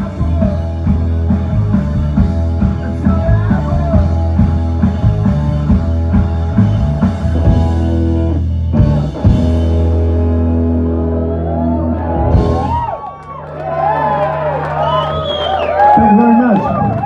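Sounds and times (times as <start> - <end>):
live rock band playing: 0.0 - 13.1.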